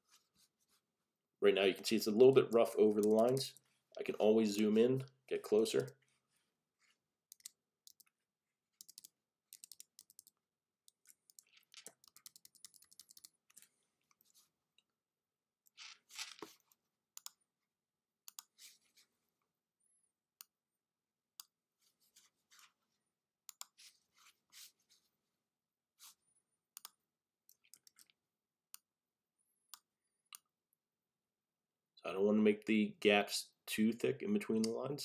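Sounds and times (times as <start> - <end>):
computer mouse clicks: 3.0 - 3.4, 7.3 - 8.1, 8.8 - 14.2, 23.5 - 23.8, 26.8 - 28.2.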